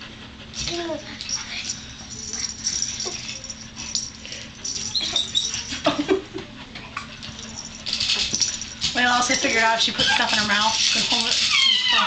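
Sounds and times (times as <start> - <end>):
infants squealing: 11.4 - 12.0.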